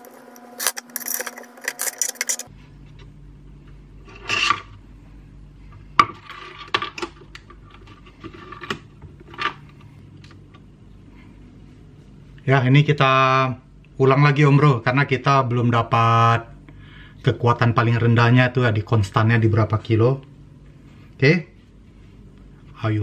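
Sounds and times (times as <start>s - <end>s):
faint steady hum: 0.0s - 23.0s
small metal parts clinking: 0.6s - 2.5s.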